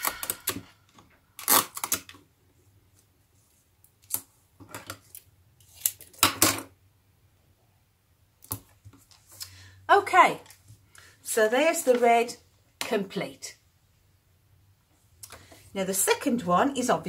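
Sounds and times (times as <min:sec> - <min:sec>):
tape pulled and torn: 0:01.3 - 0:02.2.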